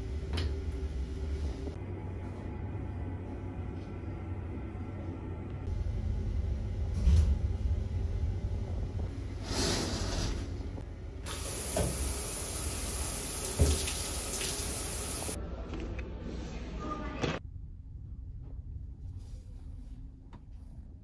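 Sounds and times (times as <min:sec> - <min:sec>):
low steady hum: 0:00.0 - 0:11.3, 0:14.6 - 0:21.0
shower spraying water: 0:11.3 - 0:15.4.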